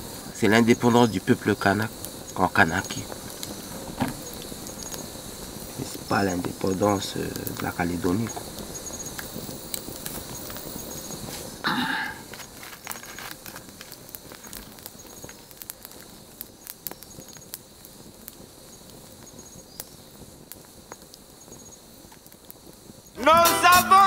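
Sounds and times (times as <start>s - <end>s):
faint insect chirps: 0.0s - 24.0s
wood fire crackling and popping: 0.0s - 24.0s
loud music: 23.2s - 24.0s.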